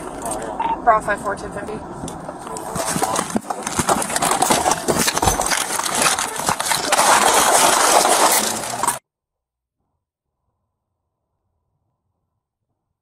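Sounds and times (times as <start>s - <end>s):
body camera rustling and knocking: 2.1s - 9.0s.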